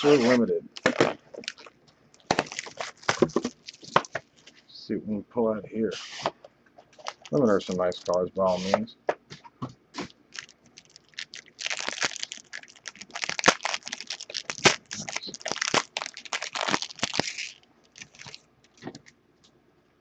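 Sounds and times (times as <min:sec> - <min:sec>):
foil pack crinkling: 0:00.8 - 0:04.6, 0:06.9 - 0:08.8, 0:10.0 - 0:19.1.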